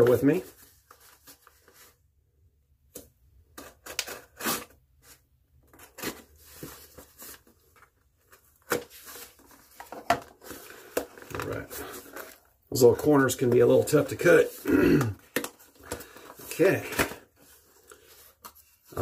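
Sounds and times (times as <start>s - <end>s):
cardboard box being cut and torn: 3.8s - 4.8s.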